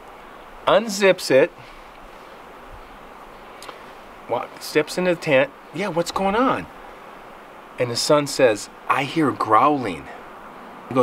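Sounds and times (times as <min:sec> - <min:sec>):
steady background hiss: 0:00.0 - 0:11.0
faint click: 0:03.6 - 0:03.8.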